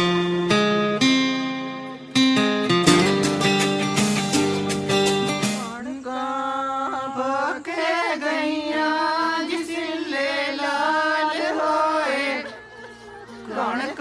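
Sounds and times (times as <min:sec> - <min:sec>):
slow solo singing: 0:02.9 - 0:14.0.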